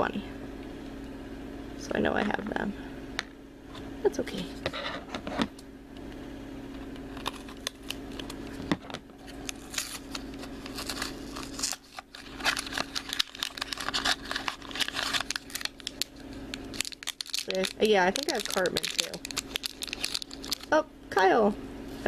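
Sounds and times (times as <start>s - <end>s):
faint steady hum: 0.0s - 22.0s
foil crinkling: 7.1s - 8.6s, 9.2s - 20.7s.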